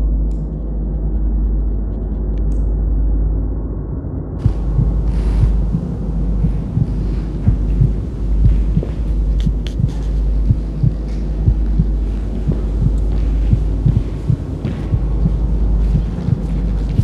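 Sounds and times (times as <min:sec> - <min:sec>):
low steady drone: 0:00.0 - 0:17.0
heavy heartbeat-like thumps: 0:04.4 - 0:17.0.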